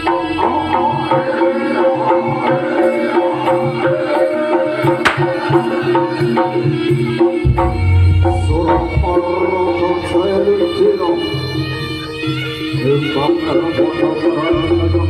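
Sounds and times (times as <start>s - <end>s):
hand drums: 0.0s - 10.4s
ringing tuned percussion: 0.0s - 15.0s
sharp crack: 5.0s - 5.5s
deep low tone: 7.5s - 9.4s.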